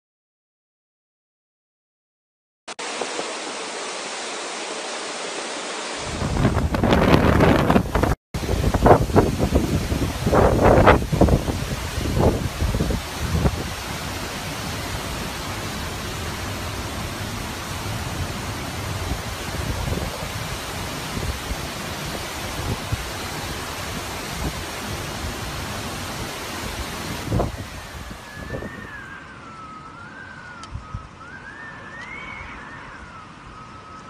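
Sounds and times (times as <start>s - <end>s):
high wind whistle: 6.0s - 21.6s, 26.1s - 34.0s
strong wind buffeting microphone: 6.0s - 31.7s.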